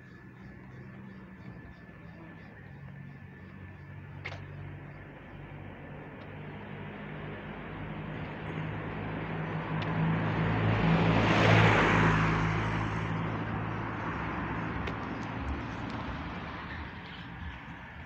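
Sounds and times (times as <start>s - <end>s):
car passing by: 6.7s - 18.0s.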